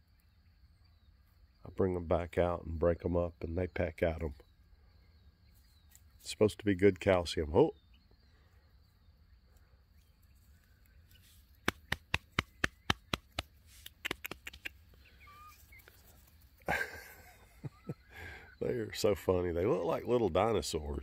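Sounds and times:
rustle: 0:08.2 - 0:18.5
soft chicken chirps: 0:09.5 - 0:16.7
hen pecking taps: 0:11.5 - 0:14.8.

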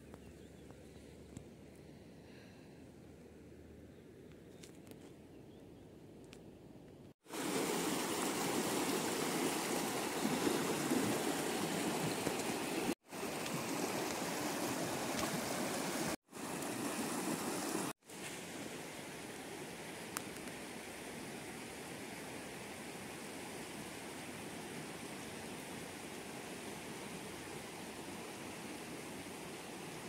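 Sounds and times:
flood water rushing: 0:07.3 - 0:18.0.

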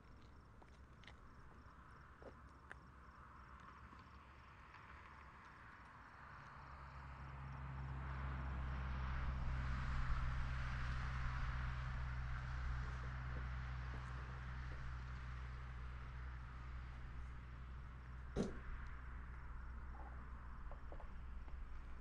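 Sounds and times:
pickup truck driving past: 0:07.0 - 0:22.0
steady low hum: 0:09.1 - 0:22.0.

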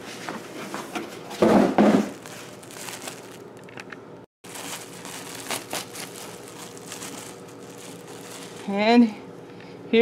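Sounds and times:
plastic bag crinkling: 0:02.0 - 0:09.0.

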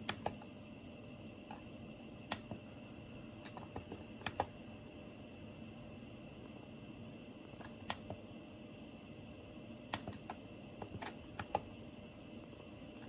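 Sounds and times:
low background hum: 0:00.0 - 0:13.0
remote control buttons clicking: 0:03.5 - 0:04.5.

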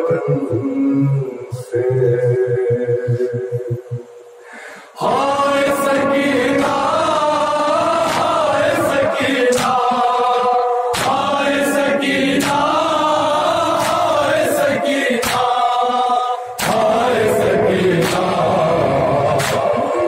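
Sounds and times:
men chanting in unison: 0:04.8 - 0:20.0
hands slapping chests: 0:09.5 - 0:09.9, 0:10.9 - 0:11.3, 0:12.4 - 0:12.8, 0:13.8 - 0:14.1, 0:15.2 - 0:15.6, 0:16.6 - 0:16.9, 0:19.4 - 0:19.7.

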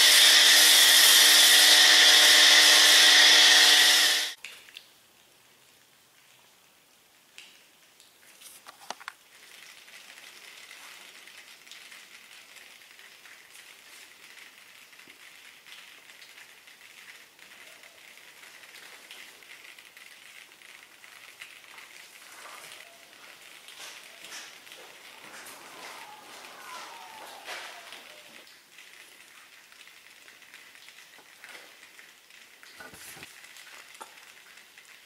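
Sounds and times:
foam bubbles crackling: 0:09.2 - 0:35.0.

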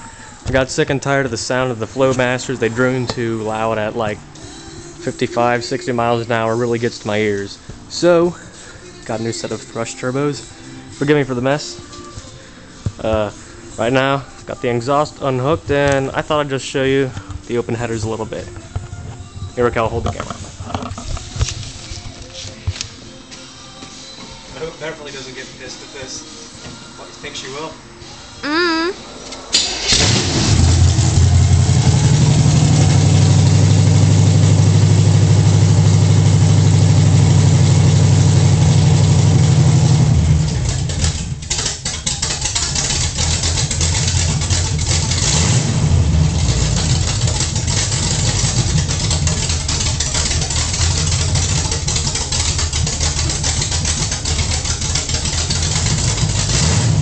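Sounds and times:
loud car engine starting and idling: 0:29.2 - 0:57.0.

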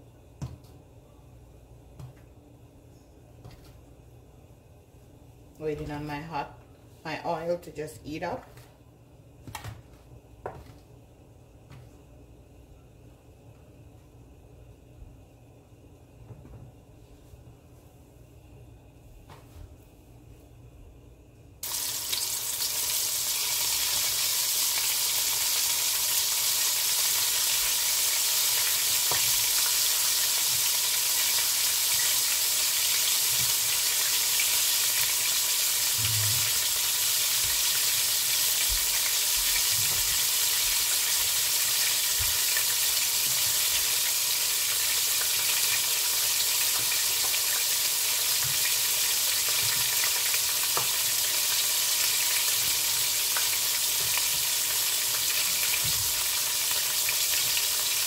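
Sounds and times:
chicken deep-frying in oil: 0:21.6 - 0:58.0.

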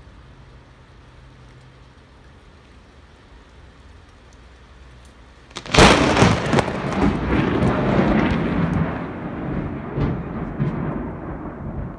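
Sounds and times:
loud thunder rumble: 0:05.6 - 0:11.9
thunderclap with sharp cracks: 0:05.6 - 0:11.9.

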